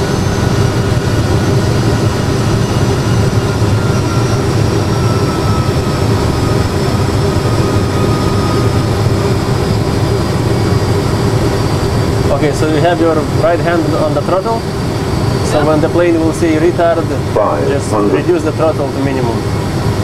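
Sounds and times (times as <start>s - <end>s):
jet engine and airflow rumble: 0.0s - 20.0s
high whine falling in pitch: 17.3s - 19.1s.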